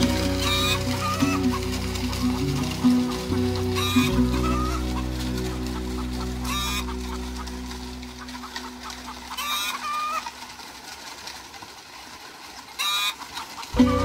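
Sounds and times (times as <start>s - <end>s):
song backing music: 0.0s - 8.8s, 13.8s - 14.0s
fowl squawking: 0.0s - 10.6s, 12.8s - 14.0s.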